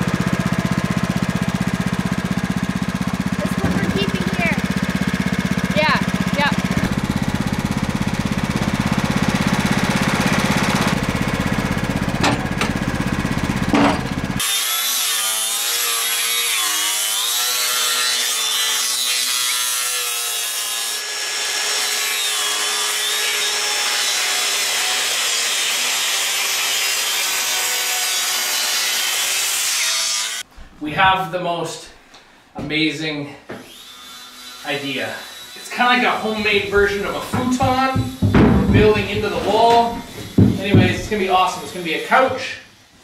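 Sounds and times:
engine running: 0.0 - 14.4
circular saw cutting wood: 0.0 - 30.5, 33.6 - 42.6.

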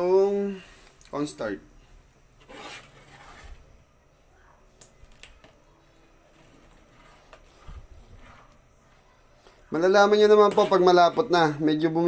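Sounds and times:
ladle stirring thick sauce: 6.0 - 9.0, 9.7 - 11.6.

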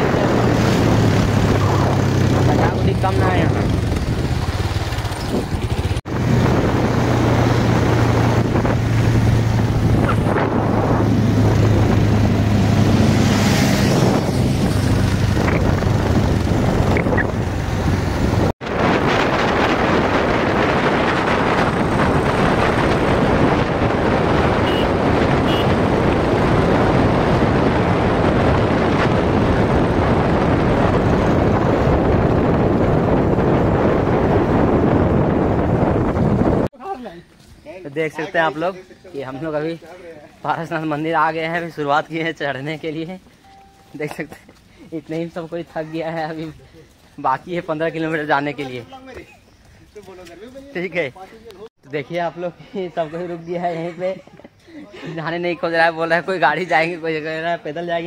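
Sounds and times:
motorcycle engine humming: 0.0 - 36.6
wind rushing over microphone: 0.0 - 36.7.

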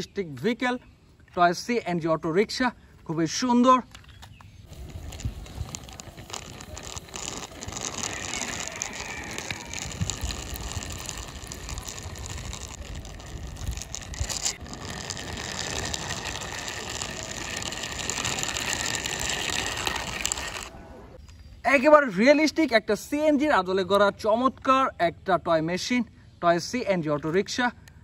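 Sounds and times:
toy wheels clicking rattle: 4.7 - 20.8.

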